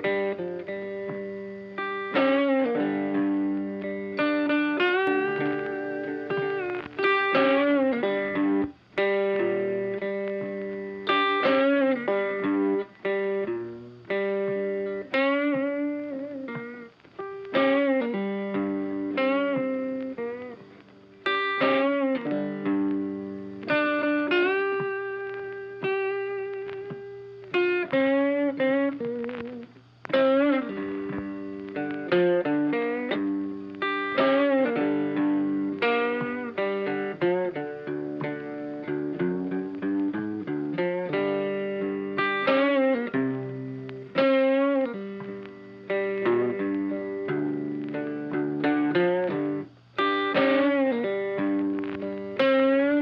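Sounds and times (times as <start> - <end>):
plucked guitar notes: 0.0 - 53.0.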